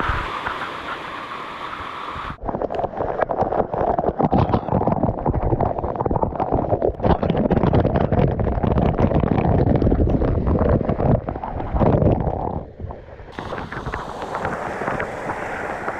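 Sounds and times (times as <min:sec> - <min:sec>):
waterfall splattering on microphone: 0:13.3 - 0:15.9.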